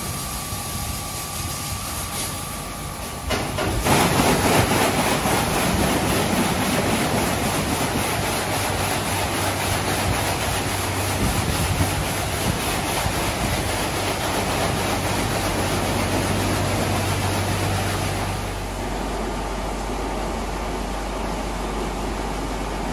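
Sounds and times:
pump hum: 0:00.0 - 0:22.9
water jets spraying: 0:03.3 - 0:18.8.

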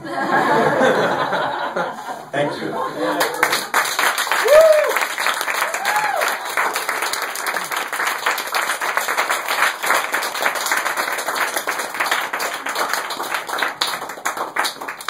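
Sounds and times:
audience applauding: 0:03.0 - 0:15.0.

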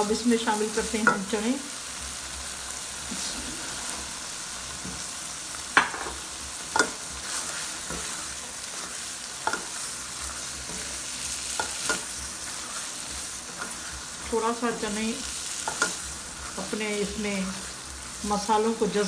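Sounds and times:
food sizzling in a wok: 0:00.0 - 0:19.0
spatula scraping and knocking pan: 0:05.8 - 0:14.4, 0:15.6 - 0:16.8.

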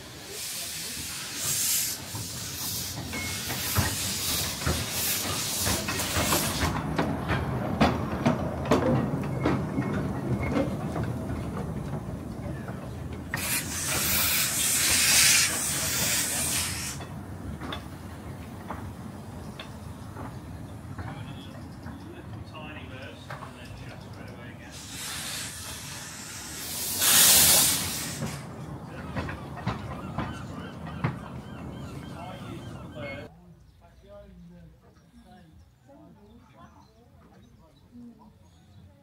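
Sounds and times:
steam locomotive hissing steam: 0:00.0 - 0:07.0, 0:13.2 - 0:17.2, 0:24.5 - 0:30.3
locomotive clanking and knocking: 0:01.4 - 0:24.9, 0:27.0 - 0:33.3.

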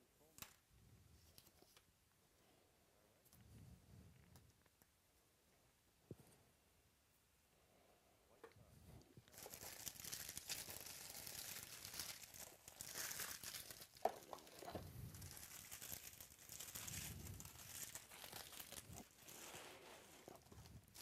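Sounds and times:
cardboard packaging crinkling: 0:09.3 - 0:21.0.

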